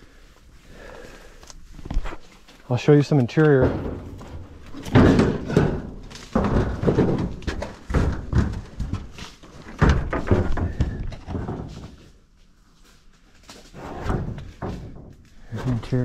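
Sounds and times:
thumps: 3.3 - 12.2
footsteps scuffling over rough ground: 10.8 - 14.6.

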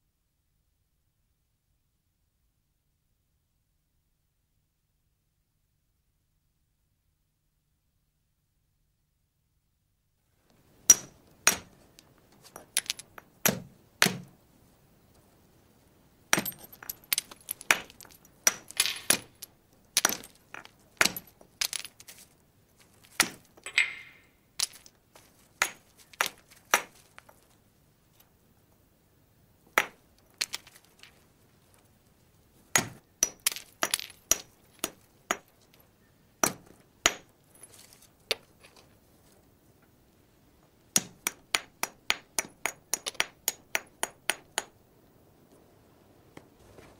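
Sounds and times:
stone striking flint: 10.9 - 14.3, 16.3 - 22.2, 22.8 - 27.4, 29.8 - 31.1, 32.7 - 35.6, 41.0 - 44.8.

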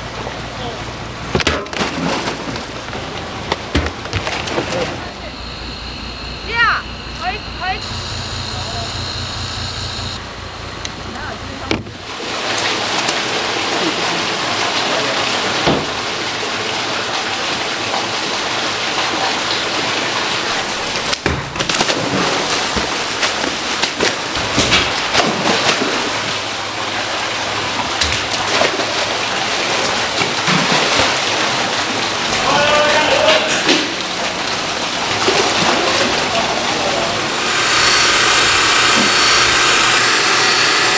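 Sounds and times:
loud water splashes: 0.0 - 40.9
tank water churning: 0.0 - 40.9
water gushing into a tank: 11.6 - 40.9.

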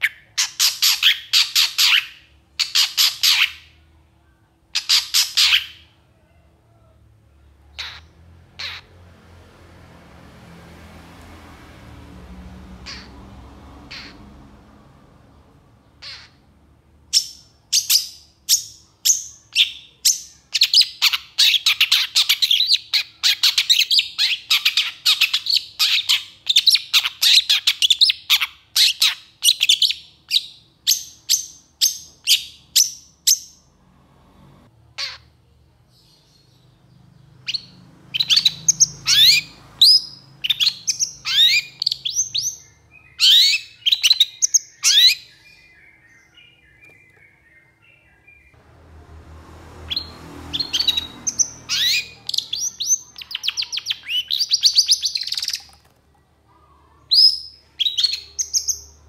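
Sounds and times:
bird singing shrill rapid notes: 0.0 - 3.8, 4.8 - 6.0, 17.1 - 33.7, 37.4 - 48.6, 49.9 - 55.8, 57.1 - 59.0.

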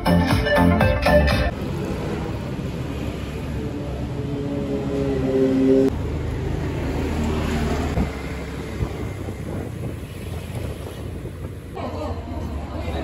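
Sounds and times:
wind on microphone: 7.7 - 13.0.

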